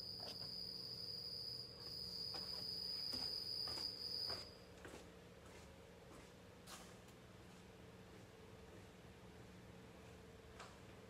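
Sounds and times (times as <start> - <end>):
cricket chirping: 0.0 - 4.7.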